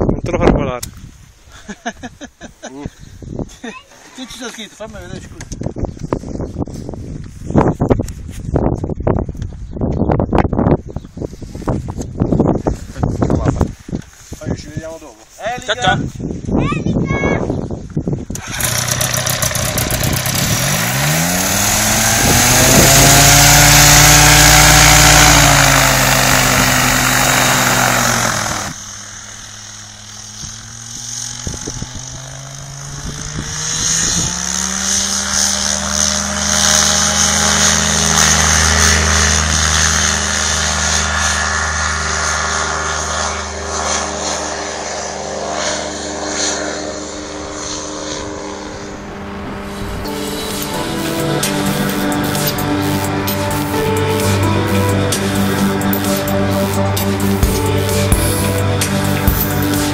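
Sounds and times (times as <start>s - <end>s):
engine and propeller running: 16.7s - 59.9s
distant wavering engine note: 19.1s - 59.9s.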